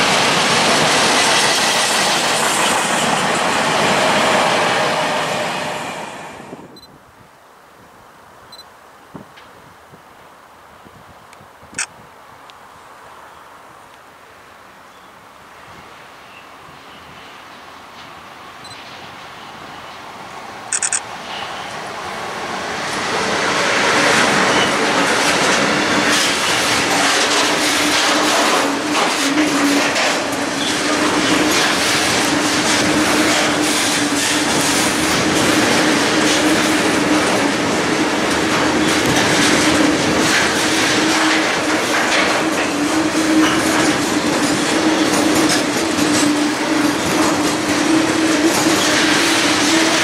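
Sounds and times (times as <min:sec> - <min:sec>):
train wheels rattling over rails: 0:00.0 - 0:06.4, 0:17.9 - 0:50.0
locomotive passing: 0:00.0 - 0:06.7, 0:16.6 - 0:50.0.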